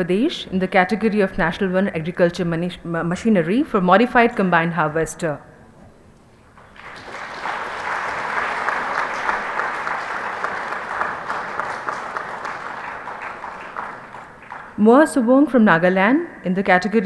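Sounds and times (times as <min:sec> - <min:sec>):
audience applauding: 0:06.6 - 0:14.8.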